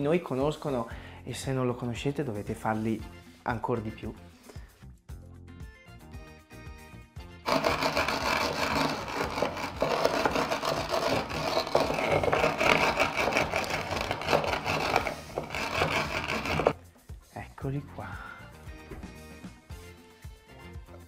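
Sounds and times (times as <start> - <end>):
light background music: 0.0 - 21.0
rolling pin crushing salt: 7.5 - 16.8.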